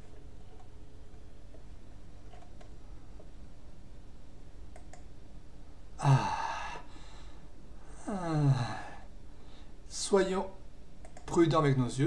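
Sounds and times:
faint mouse clicks: 2.3 - 3.3, 4.7 - 5.1, 11.0 - 11.4
man sighing: 6.0 - 9.1.

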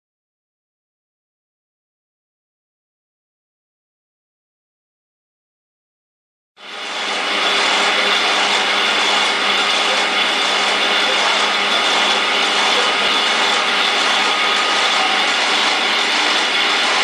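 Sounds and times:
printing machine running: 6.6 - 17.0.

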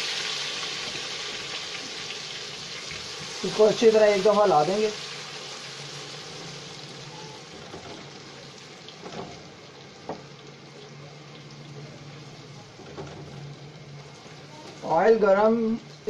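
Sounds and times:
potatoes sizzling in hot oil: 0.0 - 12.6.

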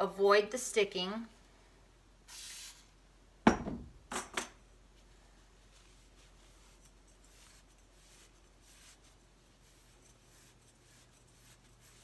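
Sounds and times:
cooking spray hiss: 2.3 - 2.9
cloth rubbing on metal: 5.0 - 12.0.

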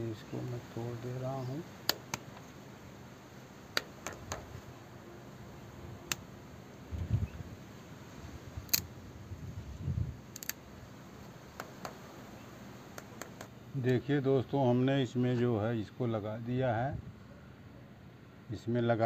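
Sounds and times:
pliers clicking on plastic: 10.4 - 10.6.

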